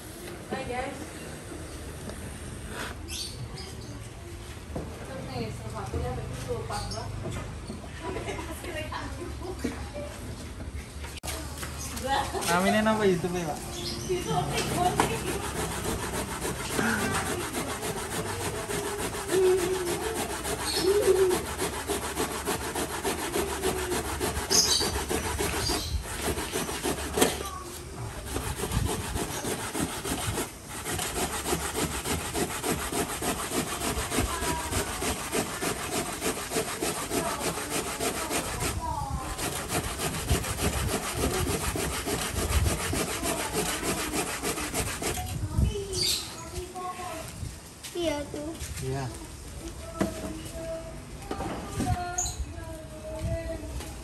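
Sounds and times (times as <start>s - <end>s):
coconut grating on metal grater: 12.0s - 13.6s, 14.4s - 45.4s.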